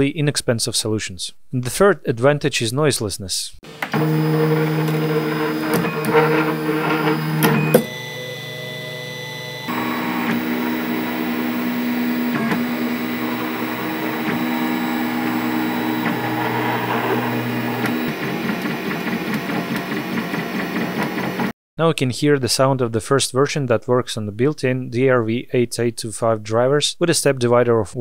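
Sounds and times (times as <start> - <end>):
stepper motors whining: 3.7 - 21.5.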